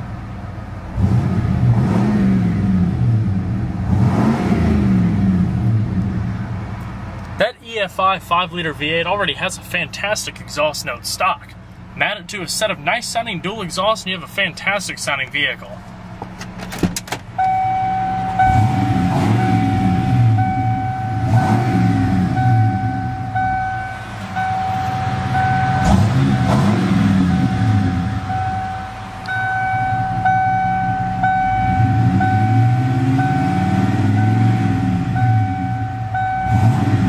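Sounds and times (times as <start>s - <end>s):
truck engine revving: 0.9s - 7.3s, 17.3s - 37.0s
warning chime beeping: 17.4s - 37.0s.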